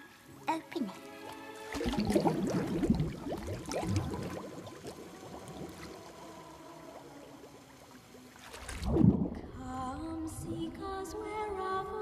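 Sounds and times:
air bubbles gurgling in water: 1.8s - 9.6s.

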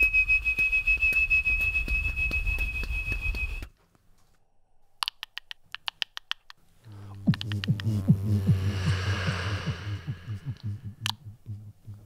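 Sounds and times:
beatboxing train imitation: 6.9s - 12.0s.

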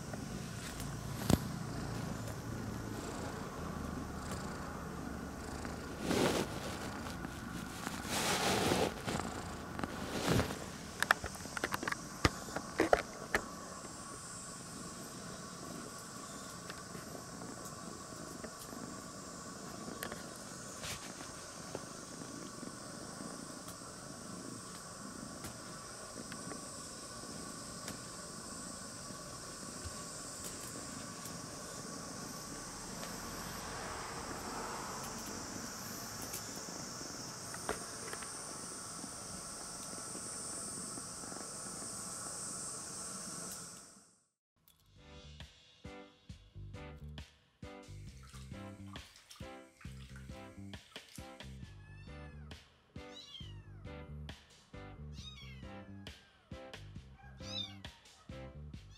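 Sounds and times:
steady background hiss: 0.0s - 44.4s
kitten meowing: 51.7s - 52.5s, 53.1s - 53.8s, 55.1s - 56.1s, 57.2s - 58.0s.

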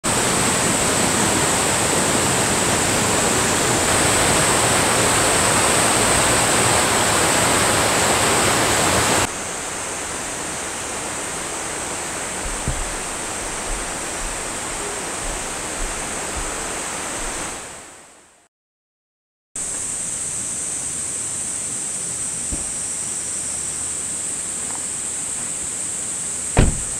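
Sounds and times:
stream rushing over rocks: 0.0s - 18.0s
faint knocks: 12.4s - 17.4s.

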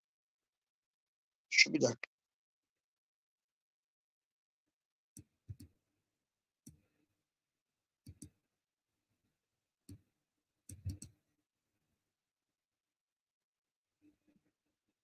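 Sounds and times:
faint clicks and light taps: 8.1s - 8.4s.

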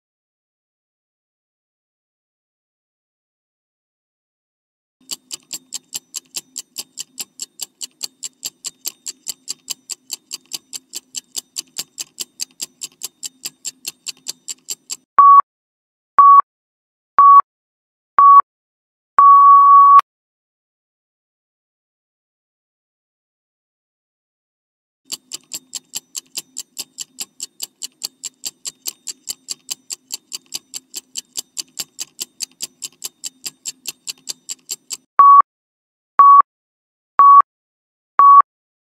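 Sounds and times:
rapid clock ticking: 5.0s - 15.1s, 25.1s - 35.1s.

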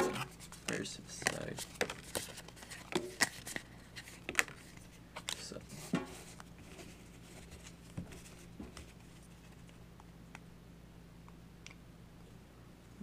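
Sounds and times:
trading cards tapping and rustling: 0.0s - 9.6s
steady low hum: 0.0s - 13.0s.

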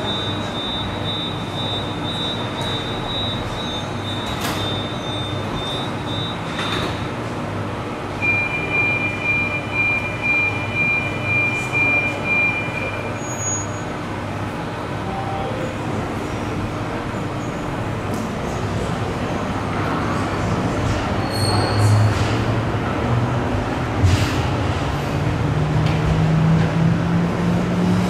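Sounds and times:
door-closing warning beeps: 0.0s - 7.0s, 8.2s - 13.8s.

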